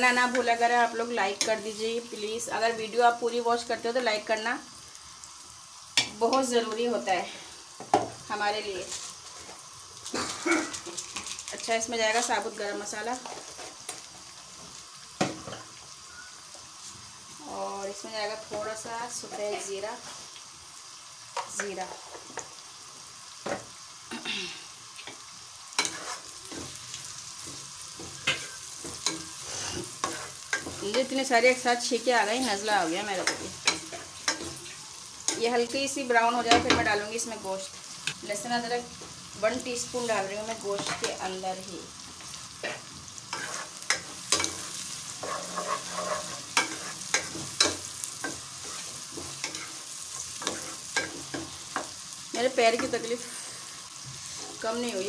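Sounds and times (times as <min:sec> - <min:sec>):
onions sizzling in hot oil: 0:00.0 - 0:55.0
spoon scraping a pot: 0:25.8 - 0:26.3, 0:42.6 - 0:47.6
spatula scraping and knocking pot: 0:45.2 - 0:49.7.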